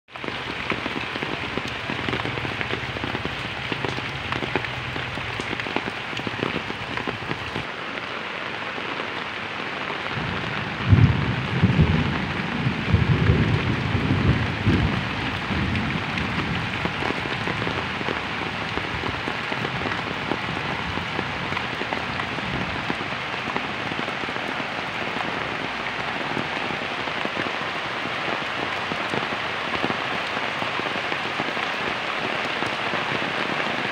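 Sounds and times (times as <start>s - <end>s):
heavy rain on wet ground: 0.1s - 33.9s.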